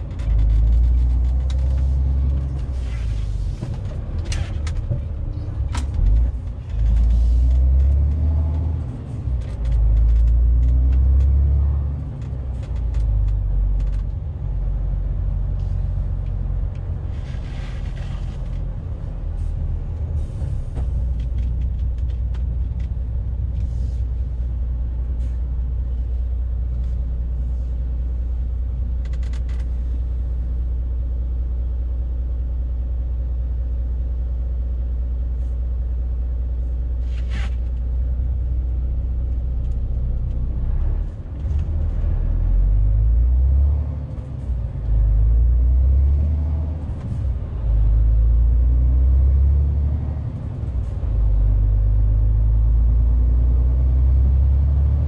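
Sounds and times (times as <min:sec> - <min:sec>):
light clicks and rattles: 0:00.0 - 0:02.8, 0:03.6 - 0:14.3, 0:20.7 - 0:24.5, 0:28.7 - 0:30.2
diesel truck engine rumble: 0:00.0 - 0:55.0.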